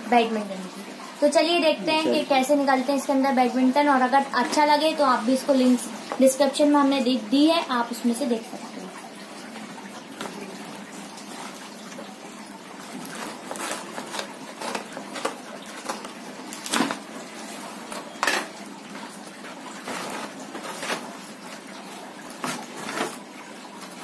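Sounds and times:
cardboard scraping and tearing: 0:12.9 - 0:17.6, 0:19.8 - 0:21.3, 0:22.3 - 0:23.2
sharp cardboard rips: 0:13.1 - 0:17.0.

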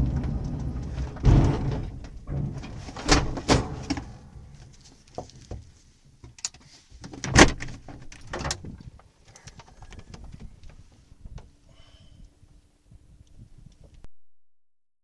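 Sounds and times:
canopy clunk: 0:00.0 - 0:04.8
light rattles and knocks: 0:00.0 - 0:06.4.

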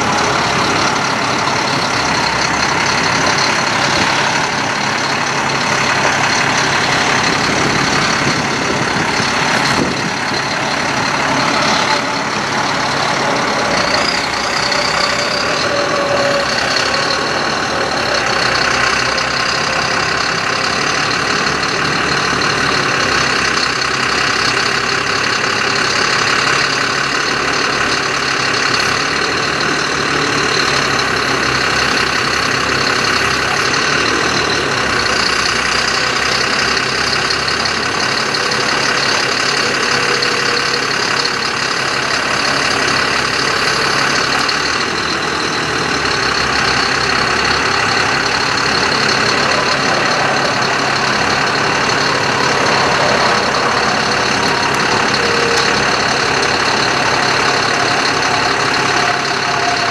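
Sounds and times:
diesel truck engine running: 0:00.0 - 0:59.9.

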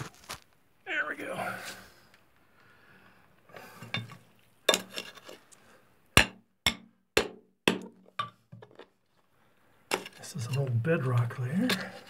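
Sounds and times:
steel tool scraping rock: 0:04.7 - 0:05.4, 0:09.9 - 0:12.0.

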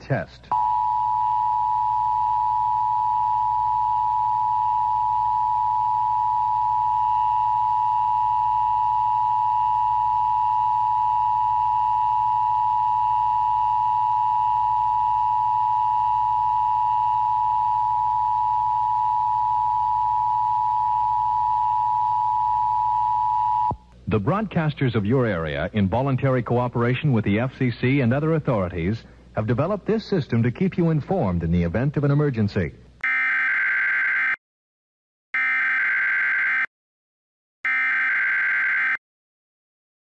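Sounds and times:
two-tone alarm signal: 0:00.5 - 0:23.8, 0:33.0 - 0:34.4, 0:35.4 - 0:36.7, 0:37.7 - 0:39.0.

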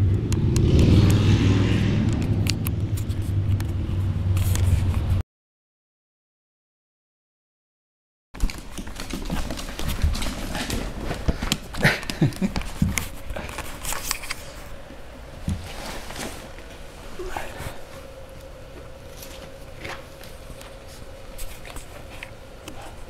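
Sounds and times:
puppies scuffling: 0:08.4 - 0:14.8.

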